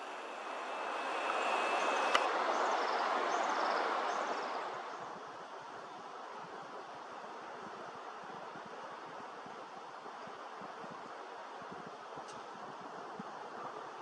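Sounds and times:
wind rushing through bush: 0:00.0 - 0:14.0
sharp click: 0:00.1 - 0:02.3.

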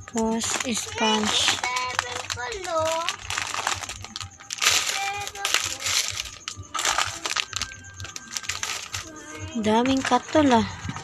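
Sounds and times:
packaging rustling and knocking: 0:00.0 - 0:09.1.

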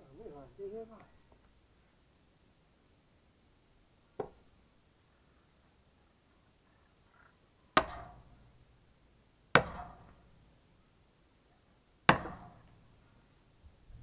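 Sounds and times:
sledgehammer striking wedge: 0:07.8 - 0:08.2, 0:09.6 - 0:10.2, 0:12.1 - 0:12.7.

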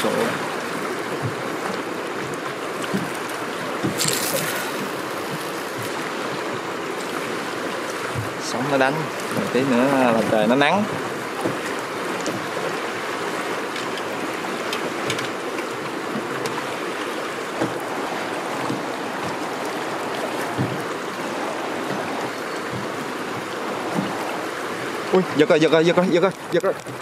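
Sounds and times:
waves splashing against boat hull: 0:00.0 - 0:27.0
faint knocks on hull: 0:01.2 - 0:01.8, 0:10.8 - 0:12.6, 0:17.5 - 0:17.9, 0:18.6 - 0:19.4, 0:20.2 - 0:21.0, 0:21.8 - 0:24.3.

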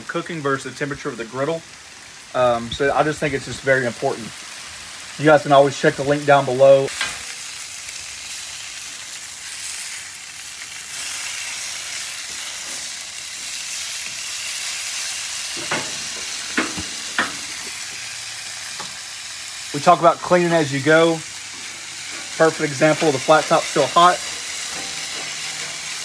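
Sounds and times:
chicken sizzling on griddle: 0:00.0 - 0:26.0
spatula clicking on griddle: 0:15.5 - 0:18.1, 0:24.0 - 0:26.0.

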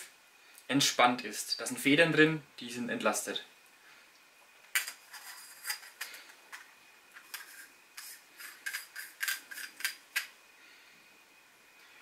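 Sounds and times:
metal threads scraping and clicking: 0:04.8 - 0:10.3.

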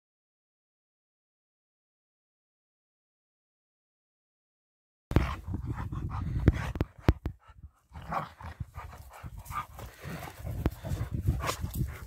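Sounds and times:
dog panting: 0:05.1 - 0:12.0.

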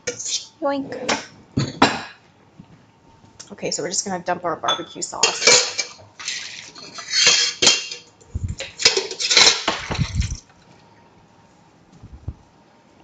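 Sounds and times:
utensil scraping a steel bowl: 0:00.0 - 0:00.5, 0:05.2 - 0:08.0.

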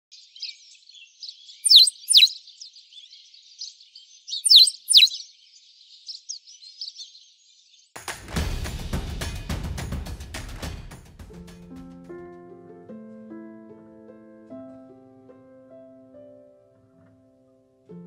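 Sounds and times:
small birds chirping: 0:00.1 - 0:08.0
music with drums: 0:08.0 - 0:12.2.

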